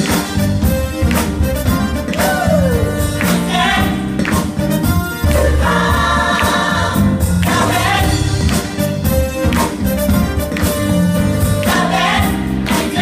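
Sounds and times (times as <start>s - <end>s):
band playing a steady beat: 0.0s - 13.0s
gospel choir singing: 2.2s - 4.6s, 5.2s - 8.7s, 11.5s - 13.0s.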